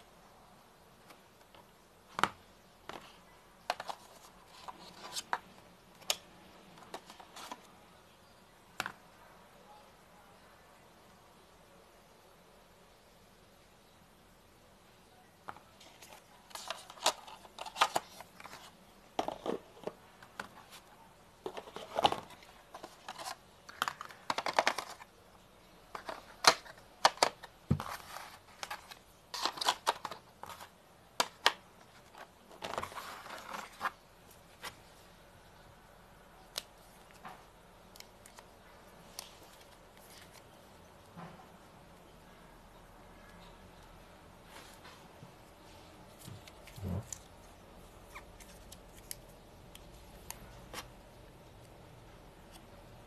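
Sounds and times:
cardboard packaging rustling: 25.9s - 34.7s.

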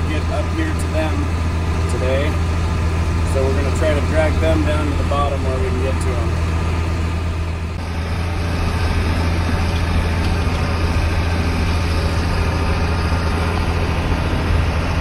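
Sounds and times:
tractor diesel engine droning: 0.0s - 15.0s.

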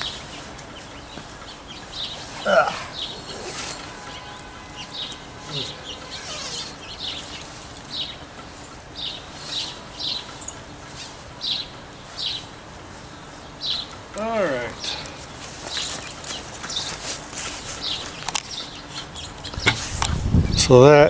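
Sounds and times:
small bird chirping: 0.0s - 10.6s.

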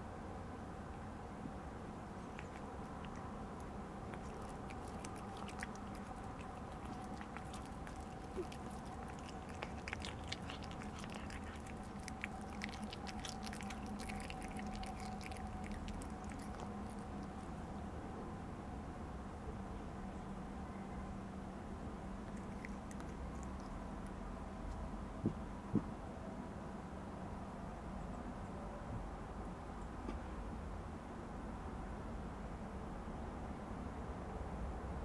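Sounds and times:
cat chewing food: 1.8s - 18.0s, 22.1s - 24.8s.

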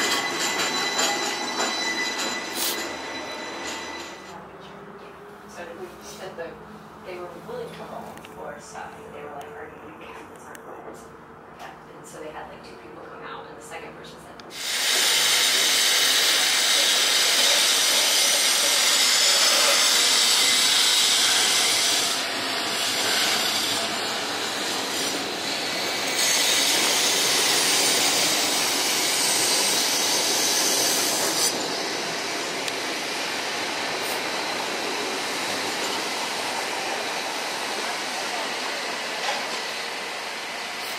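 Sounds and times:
streetcar wheels hissing on rails: 0.0s - 4.4s, 14.5s - 40.9s
wheels squealing on rails: 0.0s - 4.4s, 14.5s - 40.9s.

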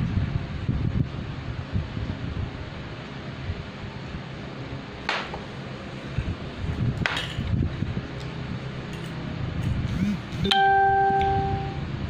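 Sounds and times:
steady low rumble: 0.0s - 10.4s
metallic ding: 10.4s - 11.8s.

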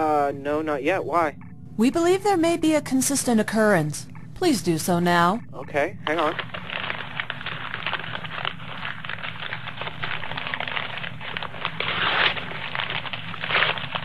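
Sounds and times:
wrapping paper crinkling and tearing: 6.1s - 14.0s.

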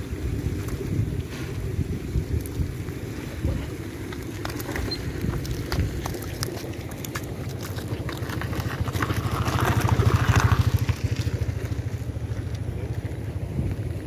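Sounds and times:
small engine running: 7.6s - 13.3s.

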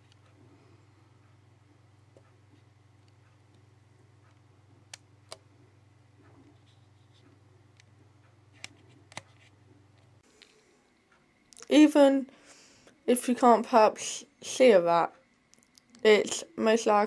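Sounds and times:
low electrical hum: 0.0s - 17.0s.

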